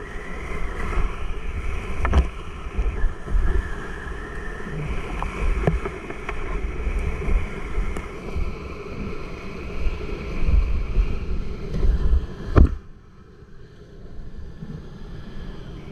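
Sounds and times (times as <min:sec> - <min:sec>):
wind buffeting camera: 0:00.0 - 0:15.9.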